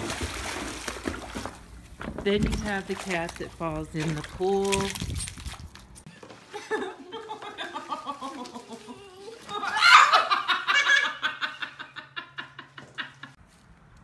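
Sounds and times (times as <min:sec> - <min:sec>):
person laughing hard: 0:06.5 - 0:13.3.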